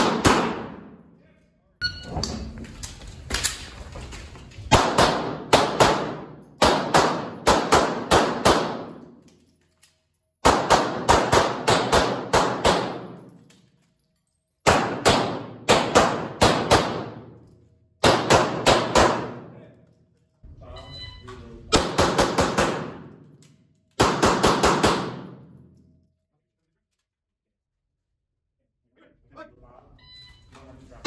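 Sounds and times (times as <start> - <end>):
pistol shots reverberating: 0.0 - 1.0, 4.7 - 9.1, 10.4 - 13.2, 14.6 - 17.4, 18.0 - 19.6, 21.7 - 23.3, 24.0 - 25.6.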